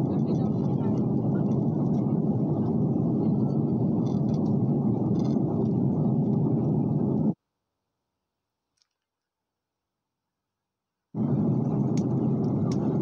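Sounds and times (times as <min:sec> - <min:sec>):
airliner cabin engine rush: 0:00.0 - 0:07.4, 0:11.2 - 0:13.0.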